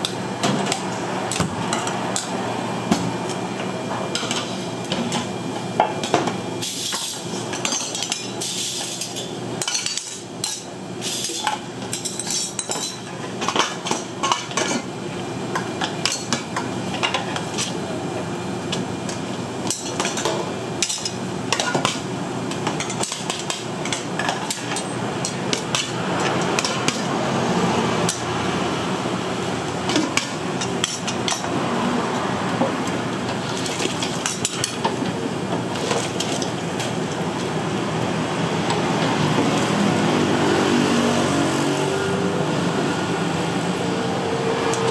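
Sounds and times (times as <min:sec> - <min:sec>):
spoons clinking on bowls and pots: 0:11.3 - 0:14.8.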